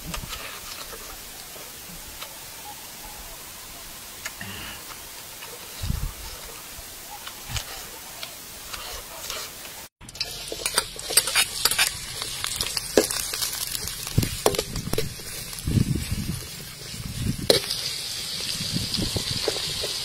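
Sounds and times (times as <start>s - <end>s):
onions sizzling in hot oil: 4.8s - 20.0s
metal ladle scraping a wok: 8.5s - 18.2s.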